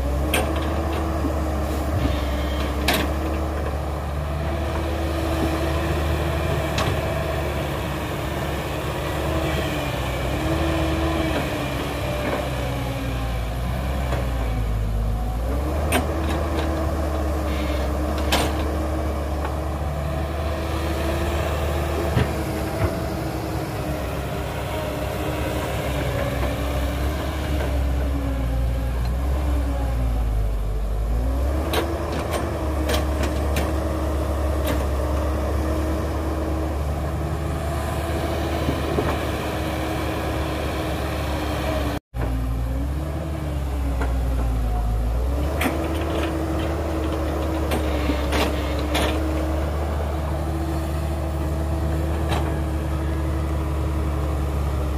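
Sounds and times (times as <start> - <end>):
heavy diesel engine running: 0.0 - 54.9.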